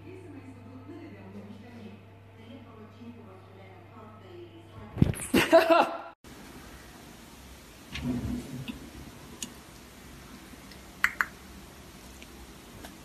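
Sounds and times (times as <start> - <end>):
drawer sliding open: 7.9 - 8.7.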